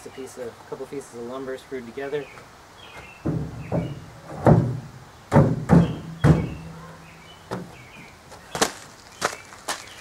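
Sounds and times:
lumber knocking on metal rack: 3.2s - 6.8s.

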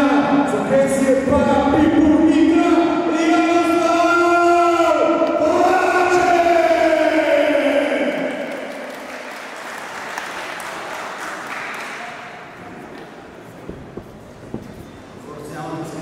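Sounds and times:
crowd applauding: 7.6s - 13.2s.

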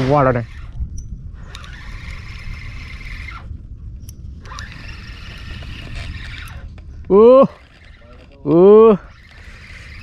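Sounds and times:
fishing reel gears whirring: 0.0s - 10.0s.

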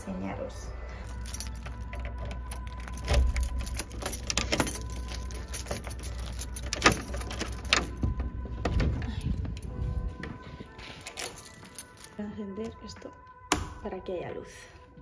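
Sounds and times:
keys jangling: 1.0s - 8.4s, 10.9s - 12.2s
key grating in door lock: 1.1s - 8.2s.

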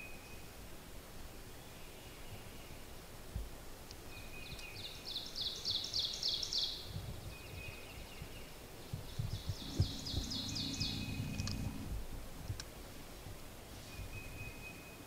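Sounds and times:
soft low thumps: 8.9s - 12.6s
songbird singing high notes: 9.4s - 11.9s.

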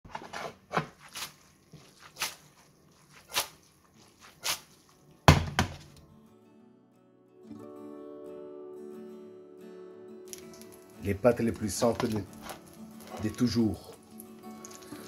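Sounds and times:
frying pan knocking on stovetop: 5.3s - 5.9s.

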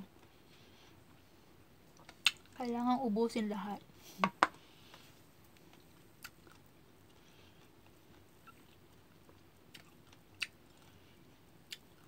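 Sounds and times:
person chewing fruit: 1.9s - 2.6s, 5.5s - 12.0s.

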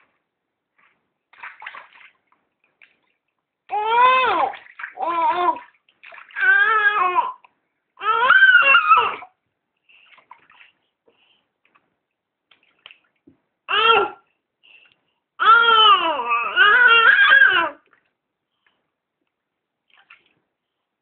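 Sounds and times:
faint water sounds: 0.7s - 11.9s, 14.0s - 21.0s
baby babbling: 3.7s - 5.7s, 6.4s - 7.4s, 15.4s - 17.8s.

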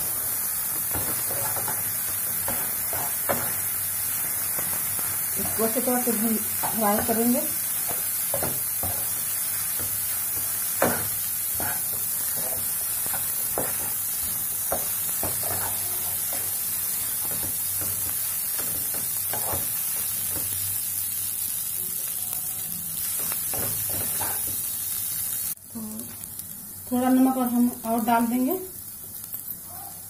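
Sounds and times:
food sizzling in a frying pan: 0.0s - 30.0s
spatula scraping and knocking pan: 0.8s - 5.9s, 6.6s - 20.5s, 23.2s - 24.6s.

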